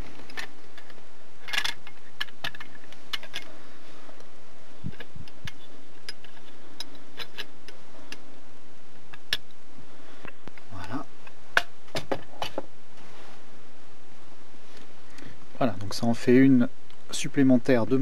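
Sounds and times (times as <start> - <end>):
metallic clicks and clinks: 0.3 - 3.5.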